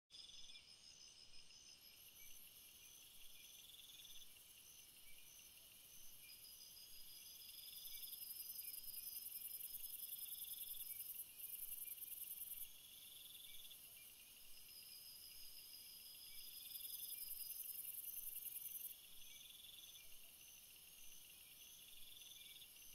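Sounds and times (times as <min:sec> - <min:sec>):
crickets chirping: 0:00.2 - 0:22.9.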